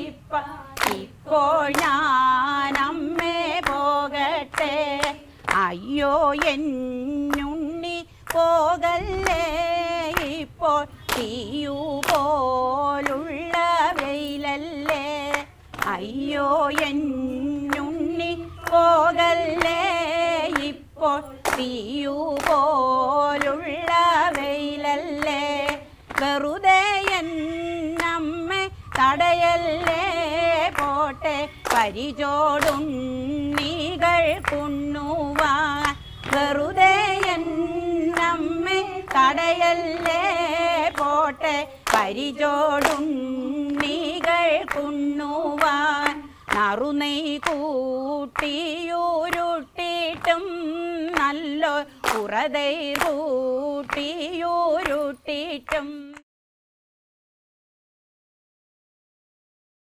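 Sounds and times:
group of women singing: 0.0 - 56.2
hands clapping in time: 0.8 - 1.1, 21.4 - 22.7, 27.9 - 37.4, 38.1 - 51.4, 52.0 - 56.2.

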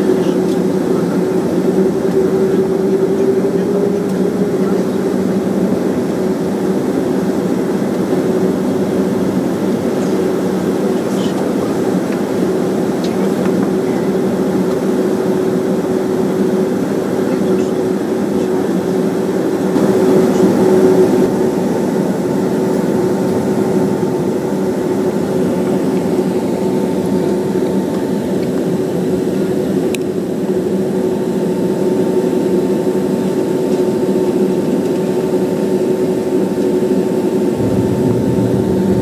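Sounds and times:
jet engines idling: 0.0 - 39.0
air conditioning hum: 37.5 - 39.0.

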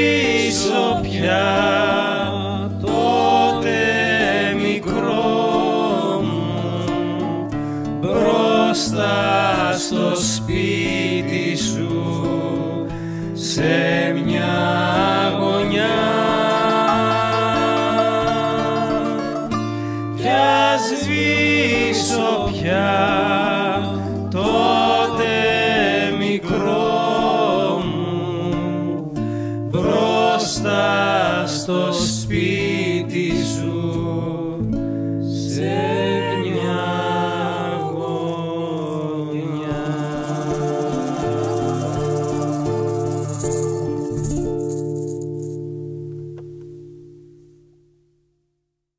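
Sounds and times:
person singing with vibrato: 0.0 - 34.6, 35.4 - 45.2
acoustic guitar: 0.0 - 48.5
bouzouki: 15.0 - 25.7.

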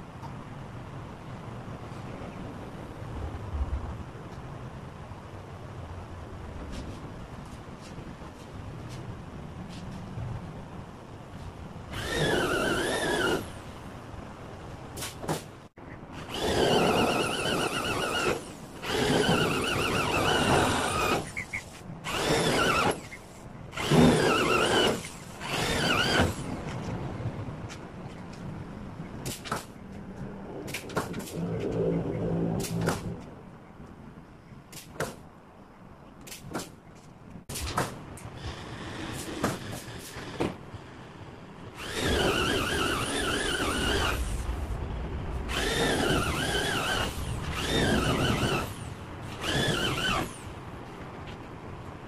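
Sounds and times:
electric drill drilling into steel: 11.9 - 13.5, 16.2 - 21.3, 22.1 - 23.1, 23.8 - 26.5, 41.8 - 44.4, 45.5 - 48.8, 49.4 - 50.5.

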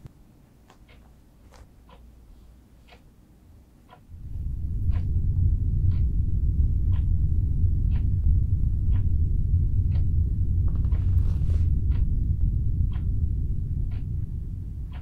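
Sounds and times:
clock ticking: 0.8 - 2.2, 2.8 - 5.2, 5.8 - 15.0
low rumbling drone: 4.1 - 15.0.

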